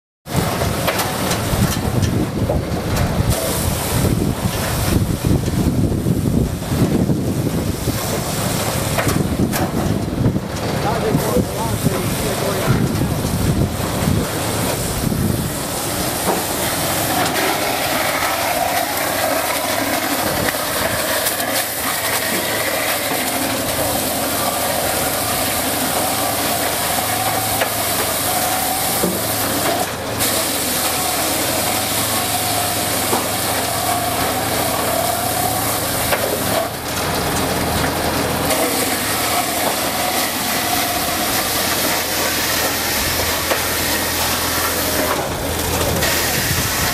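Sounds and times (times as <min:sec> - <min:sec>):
dowel mill machine running: 0:00.3 - 0:46.9.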